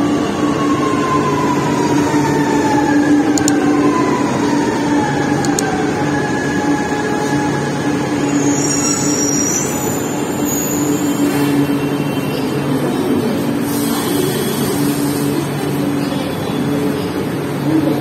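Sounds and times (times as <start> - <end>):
wheel or brake squeal: 8.3 - 12.3.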